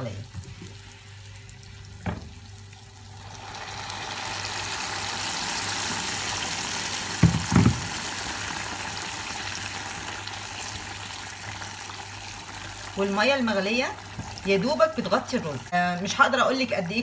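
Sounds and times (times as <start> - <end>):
pot bubbling: 0.0 - 17.0
water sizzling in hot fat: 0.0 - 17.0.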